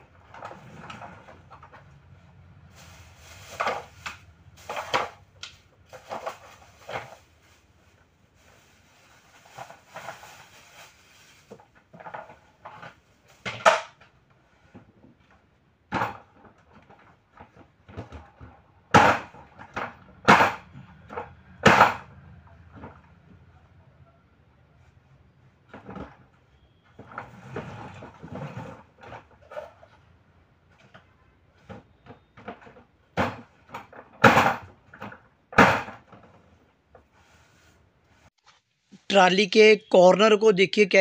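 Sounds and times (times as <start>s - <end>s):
plastic scraping: 0.1s - 2.0s, 2.7s - 13.9s, 27.0s - 30.1s
plastic boards clattering: 3.4s - 7.3s, 11.4s - 14.1s, 15.9s - 22.1s, 30.7s - 37.2s.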